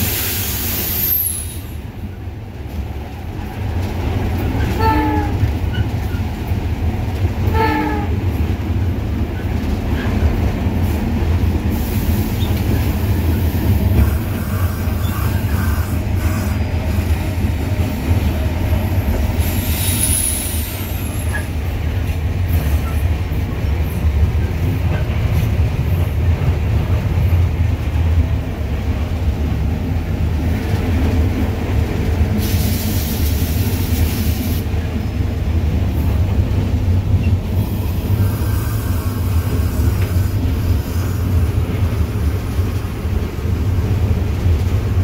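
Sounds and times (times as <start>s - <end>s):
burst of hiss: 19.4s - 21.2s, 32.4s - 34.7s.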